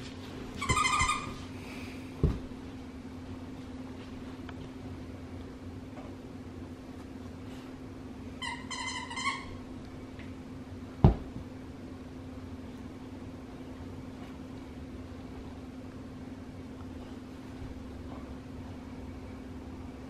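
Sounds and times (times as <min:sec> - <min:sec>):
dog toy squeaking: 0:00.6 - 0:01.4, 0:08.4 - 0:09.6.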